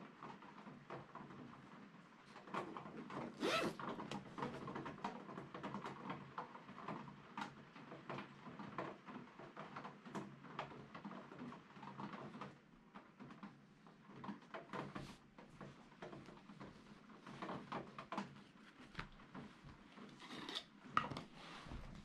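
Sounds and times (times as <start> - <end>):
canvas crackling and rustling: 3.2 - 4.2, 16.0 - 20.2
zipper pulled open: 3.3 - 4.1.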